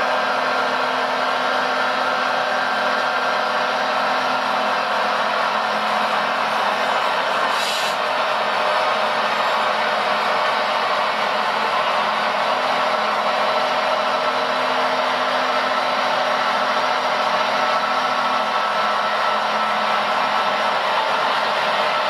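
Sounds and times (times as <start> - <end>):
hydraulic pump whirring hiss: 5.7 - 11.4.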